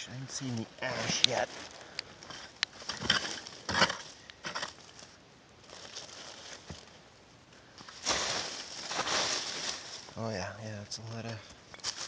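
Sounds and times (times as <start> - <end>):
faint rustling: 0.0 - 12.0
digging tool scraping dirt: 0.8 - 5.0.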